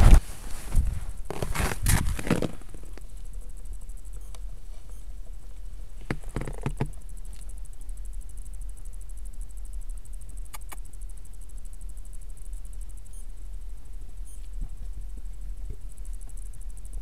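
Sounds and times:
crunching rustling noise: 0.0 - 3.4, 5.9 - 7.4.

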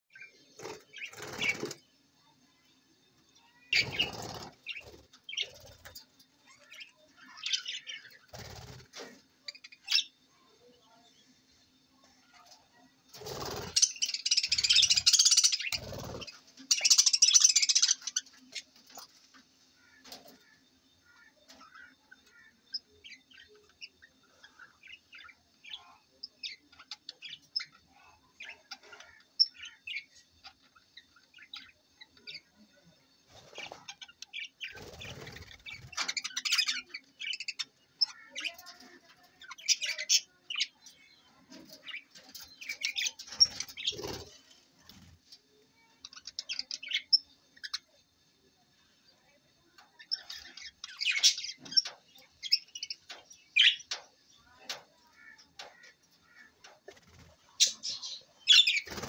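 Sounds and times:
budgerigars chirping and chattering: 0.1 - 1.9, 3.4 - 10.3, 12.3 - 45.1, 45.8 - 48.0, 48.8 - 59.0
wings flapping: 13.2 - 13.9, 58.7 - 59.0.

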